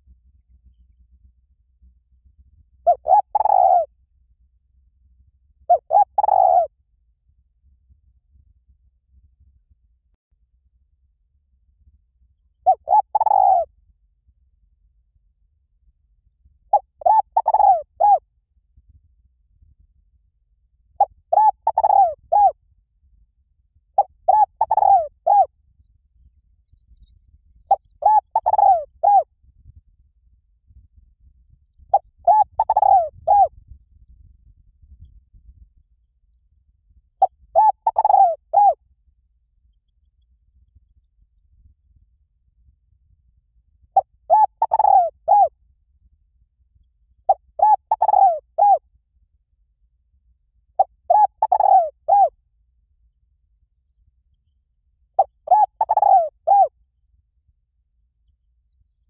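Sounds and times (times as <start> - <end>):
dove cooing: 2.8 - 3.9, 5.7 - 6.7, 12.7 - 13.7, 16.7 - 18.2, 21.0 - 22.5, 24.0 - 25.5, 27.7 - 29.2, 31.9 - 33.5, 37.5 - 38.8, 44.0 - 45.5, 47.3 - 48.8, 50.8 - 52.3, 55.2 - 56.7.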